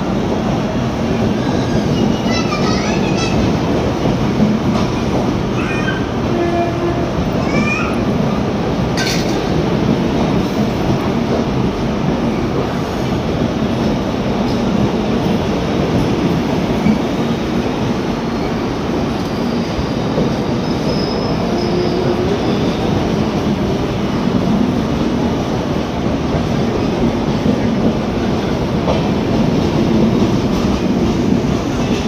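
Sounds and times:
train wheels rumbling on rails: 0.0s - 32.0s.

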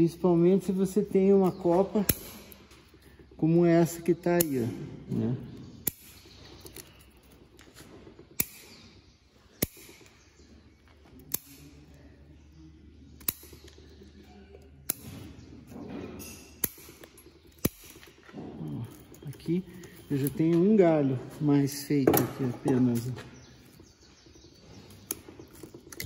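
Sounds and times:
scissors snipping twigs: 0.8s - 4.8s, 5.8s - 7.6s, 8.4s - 8.9s, 9.6s - 10.2s, 11.2s - 11.9s, 13.2s - 14.1s, 16.5s - 18.2s.

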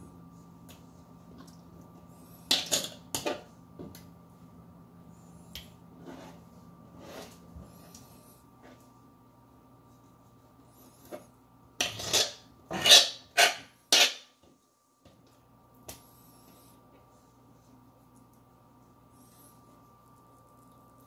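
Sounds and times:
faint steady hum: 0.0s - 21.0s
knife scraping plastic cutting board: 11.8s - 14.2s.

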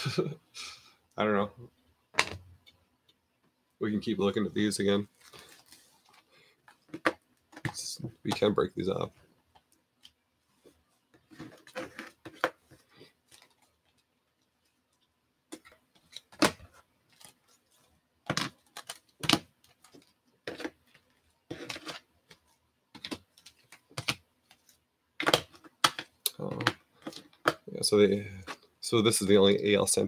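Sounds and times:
plastic card cases clacking: 23.0s - 27.7s.

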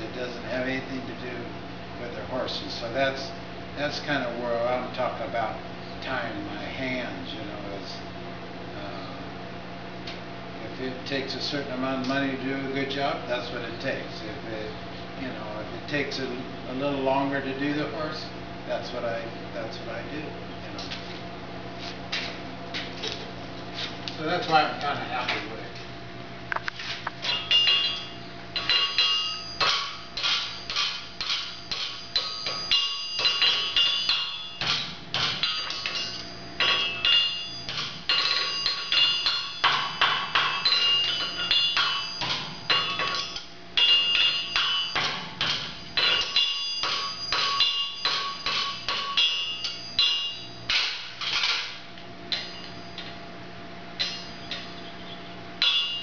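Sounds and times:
hammer striking horseshoe on anvil: 27.2s - 53.1s, 54.0s - 54.8s, 55.6s - 56.0s.

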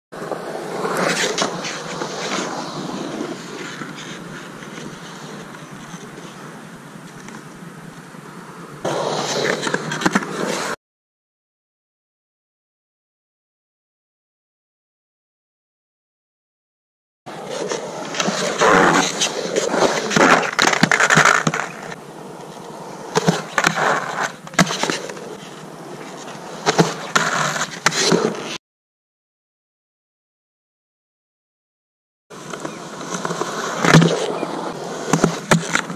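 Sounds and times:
skateboard wheels rolling on concrete: 0.1s - 10.8s, 17.3s - 28.6s, 32.3s - 35.9s
skateboard clacks: 17.3s - 28.6s, 32.4s - 35.9s.

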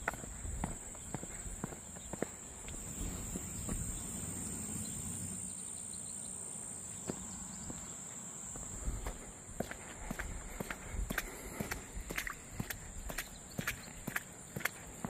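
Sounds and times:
footsteps: 0.0s - 4.2s, 8.5s - 15.0s
insect chorus drone: 0.0s - 15.0s
water rushing in ditch: 11.1s - 15.0s.

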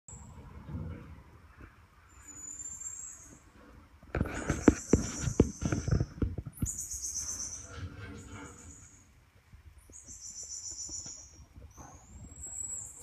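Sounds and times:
marmoset whistling calls: 6.6s - 7.7s, 9.9s - 11.4s.

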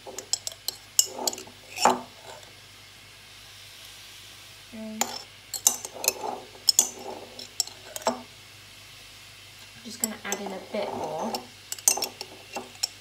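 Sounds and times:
faint steady hiss: 0.0s - 13.0s
spoon scraping glass jar: 0.1s - 2.4s, 5.0s - 8.2s, 10.0s - 13.0s.

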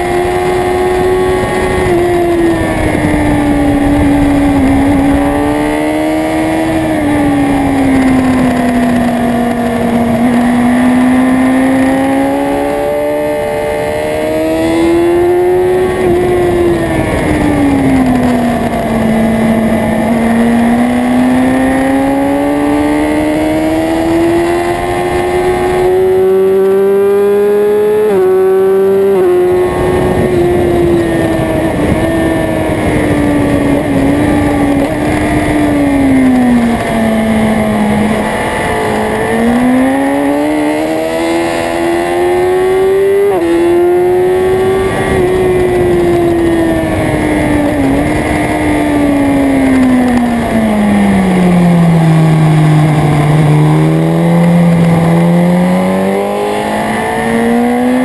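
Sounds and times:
motorcycle engine revving: 0.0s - 58.0s
wind rushing over microphone: 0.0s - 58.0s.

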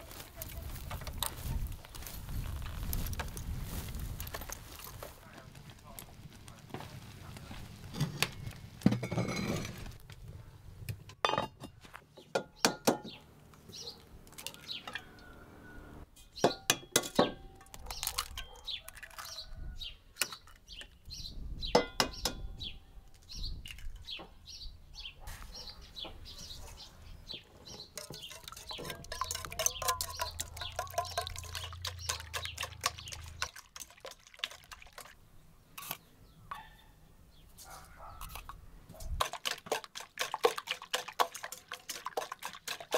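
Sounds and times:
pot shifted on stove top: 8.0s - 10.0s
crockery clinking: 8.9s - 9.8s, 21.8s - 22.6s, 27.8s - 34.4s
eggs cracked into a bowl: 16.7s - 19.4s
wire whisk beating: 28.0s - 35.2s, 39.2s - 42.9s.

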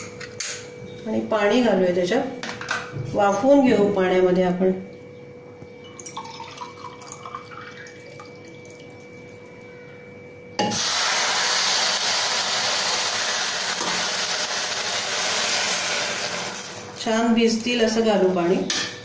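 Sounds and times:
water rushing into hot pan: 10.6s - 16.8s.

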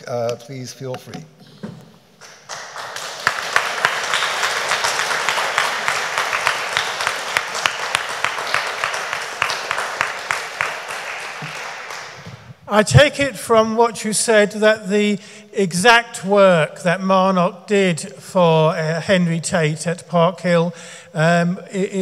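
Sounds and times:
audience applauding: 2.2s - 12.6s.

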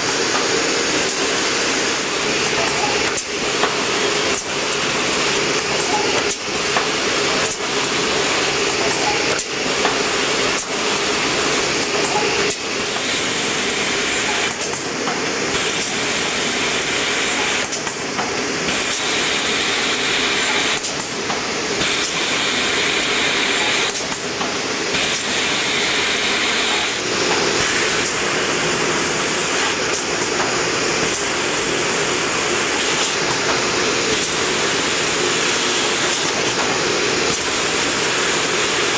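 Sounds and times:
machine humming and hissing: 0.0s - 38.9s
sharp machine clicks: 23.0s - 28.3s.

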